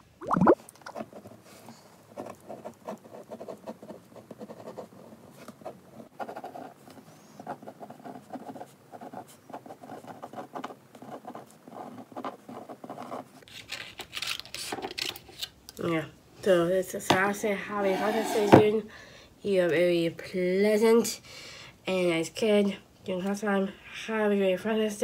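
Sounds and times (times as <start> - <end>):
pen scratching on card: 17.9 - 18.6.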